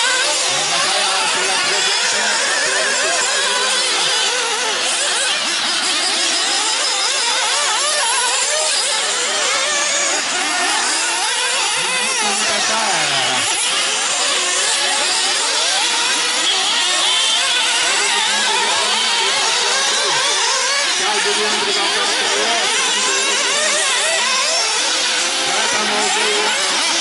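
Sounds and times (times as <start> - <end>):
small engines whining and revving: 0.0 - 27.0.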